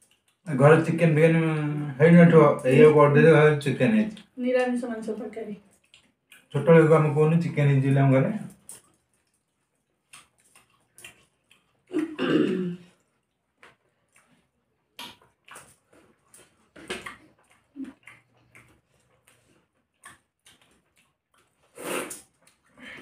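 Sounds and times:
chewing and lip smacks: 0.0 - 0.5, 5.6 - 6.6, 8.4 - 12.2, 12.9 - 23.0.

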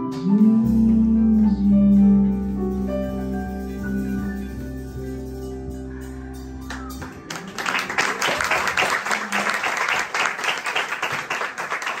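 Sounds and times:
audience applause: 6.7 - 12.0.

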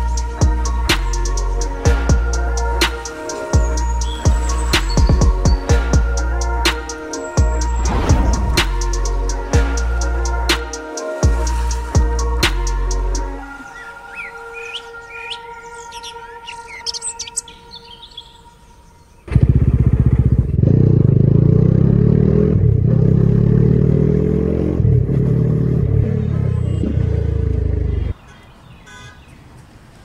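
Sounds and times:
birds chirping: 0.0 - 20.4, 25.8 - 30.0
motorcycle engine running: 19.3 - 28.1.

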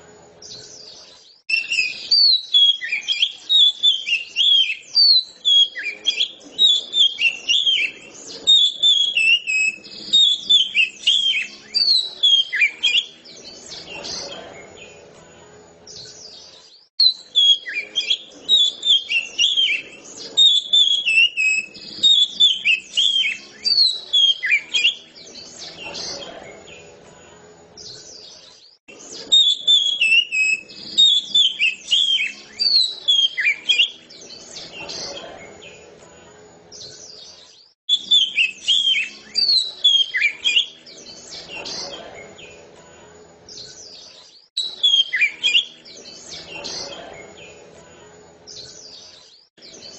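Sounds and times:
songbird whistling: 1.5 - 15.0, 16.0 - 25.9, 29.1 - 34.4, 37.9 - 41.6, 44.6 - 46.6.

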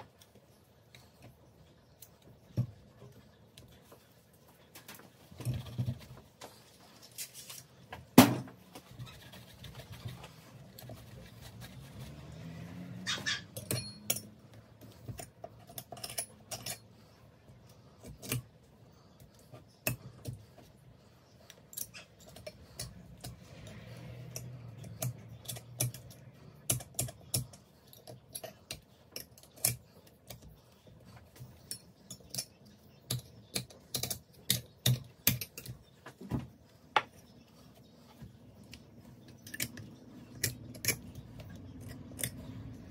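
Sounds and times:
metal tools clicking and tapping: 13.3 - 18.6, 19.2 - 20.7, 21.4 - 36.2, 38.6 - 42.9.

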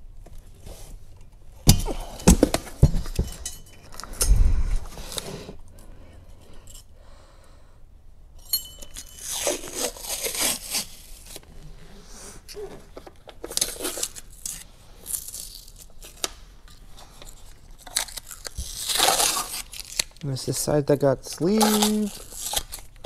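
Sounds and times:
packing material crinkling: 9.2 - 11.5, 17.0 - 20.7, 21.3 - 23.0.

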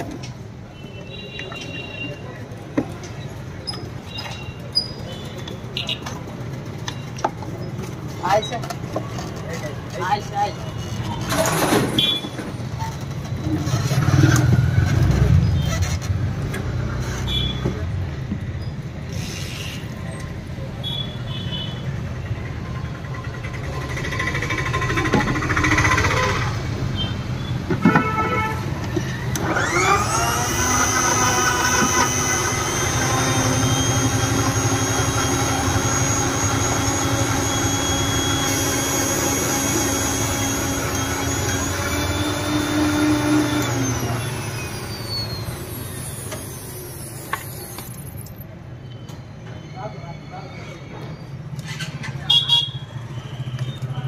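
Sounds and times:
blender motor whining: 29.2 - 48.1.

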